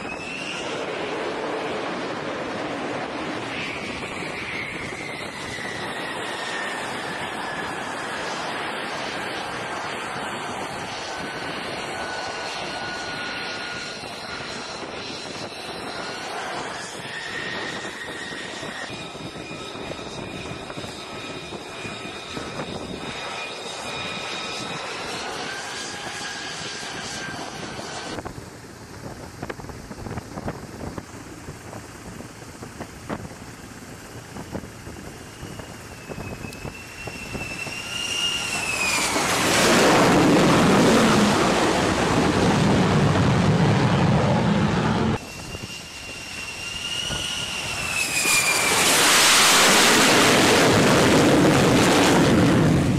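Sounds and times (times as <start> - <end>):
jet engine roar: 0.0 - 52.9
jet engine whining: 0.0 - 52.9
rising and falling tone: 36.3 - 45.3.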